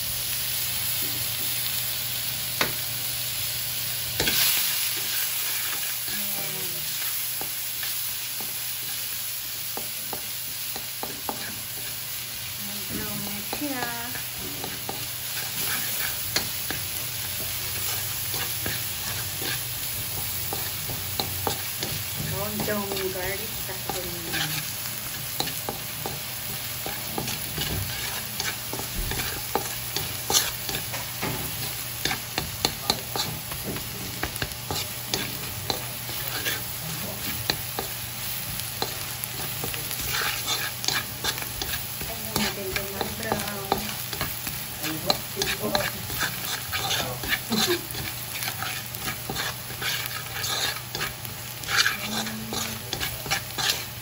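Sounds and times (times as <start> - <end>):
garlic sizzling in butter: 0.0 - 54.0
wooden spatula scraping pan: 11.0 - 12.0, 12.9 - 37.9, 38.8 - 54.0.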